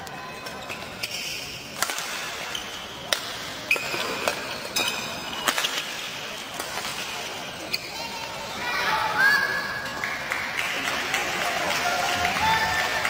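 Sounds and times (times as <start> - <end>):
large hall background: 0.0 - 13.0
court shoes squeaking: 2.4 - 8.4.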